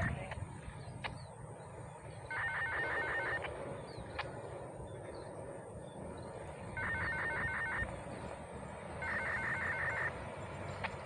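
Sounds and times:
low steady rumble: 0.0 - 11.0
level crossing warning bell: 2.3 - 3.5, 6.8 - 7.9, 9.0 - 10.7.

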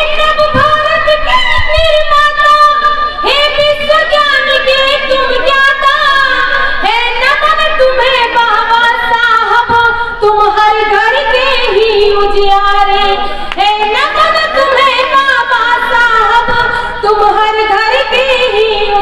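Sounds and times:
woman singing through microphones: 0.0 - 19.0.

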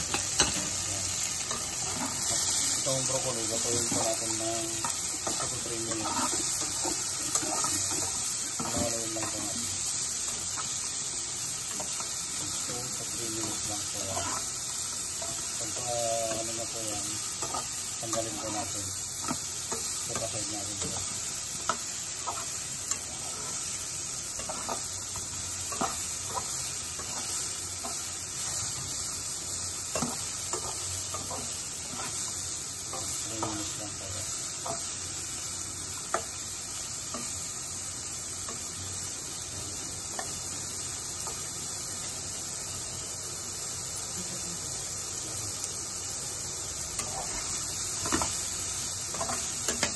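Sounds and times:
vegetables sizzling in hot oil: 0.0 - 49.9
spatula scraping a pan: 3.7 - 9.4, 14.0 - 14.6, 17.3 - 29.0.

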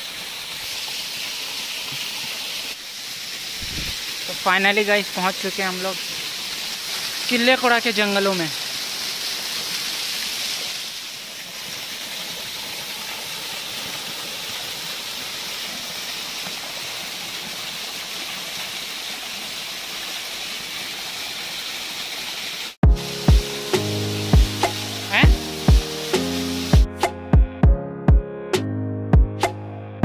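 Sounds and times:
waterfall rushing: 0.0 - 26.9.

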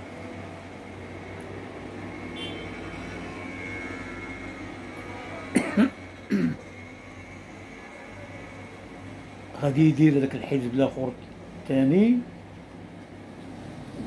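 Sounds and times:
man coughing: 5.5 - 6.7.

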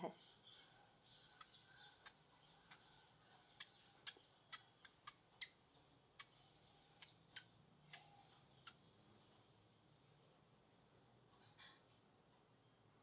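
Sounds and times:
baby squirrel suckling clicks: 3.5 - 6.4.

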